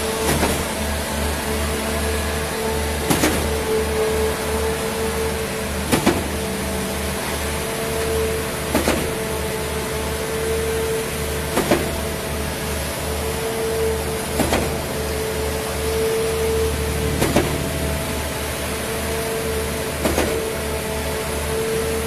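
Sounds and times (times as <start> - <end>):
diesel pump engine drone: 0.0 - 22.0.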